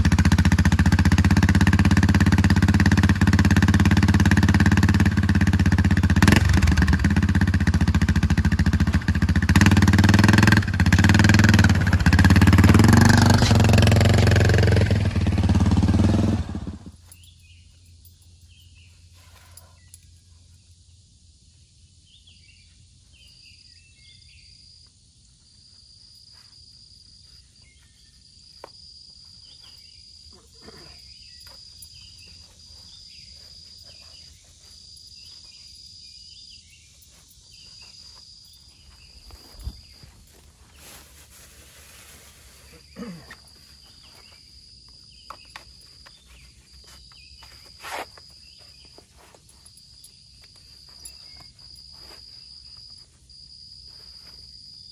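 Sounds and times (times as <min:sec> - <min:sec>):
atv engine running: 0:00.0 - 0:18.9, 0:38.7 - 0:40.9
insects buzzing: 0:16.9 - 0:54.9
birds chirping: 0:17.0 - 0:24.8, 0:27.0 - 0:41.5, 0:42.5 - 0:53.0.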